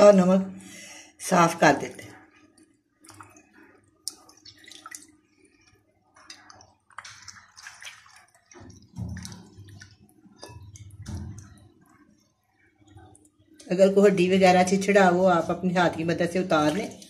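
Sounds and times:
water splashing and squelching: 1.6s - 14.0s, 14.8s - 17.0s
hands rubbing chicken in water: 2.2s - 13.7s, 14.9s - 17.0s.

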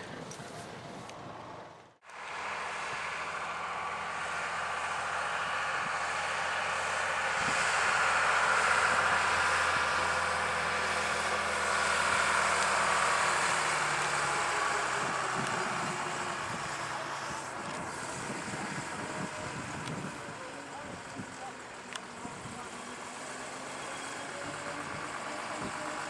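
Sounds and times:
bus engine driving past: 0.0s - 26.0s.

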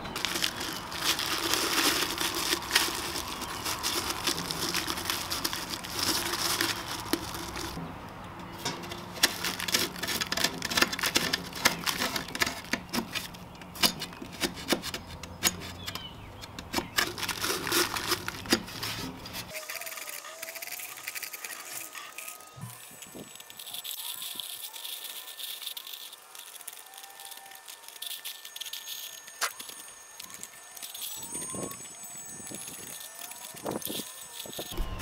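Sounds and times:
plastic bag crinkling: 0.0s - 7.8s, 8.6s - 13.4s, 16.8s - 35.0s
metal scraper chipping and scraping: 8.5s - 31.2s.

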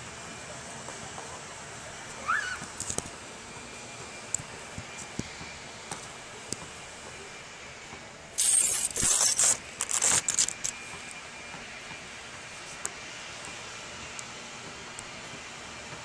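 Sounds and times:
phone handling scraping and crackling: 8.4s - 10.8s.

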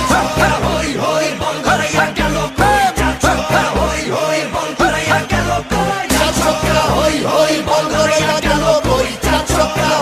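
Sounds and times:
pop dance music with singing: 0.0s - 10.0s.

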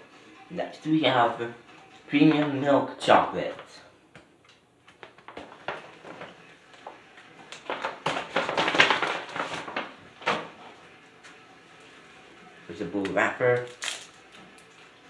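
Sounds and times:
wrapper crinkling: 7.3s - 10.1s, 13.6s - 14.8s.

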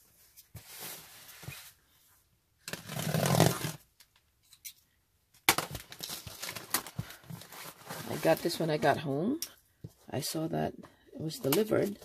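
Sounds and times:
cardboard box rustling: 5.7s - 8.6s.

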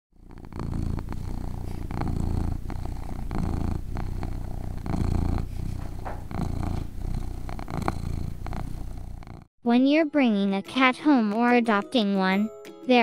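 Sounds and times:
cat purring: 0.1s - 9.5s.

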